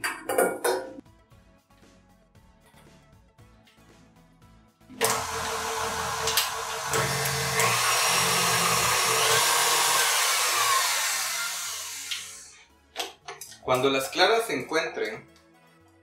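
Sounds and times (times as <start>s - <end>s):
stand mixer motor running: 5.0s - 12.5s.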